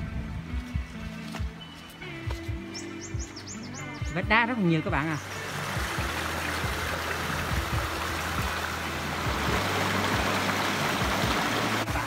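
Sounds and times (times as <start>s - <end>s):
stream rushing over rocks: 5.0s - 12.0s.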